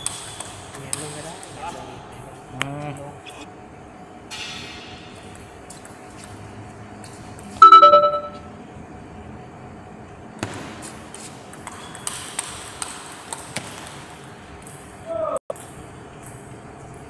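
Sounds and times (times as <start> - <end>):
loud ringing ping: 7.6 - 8.5.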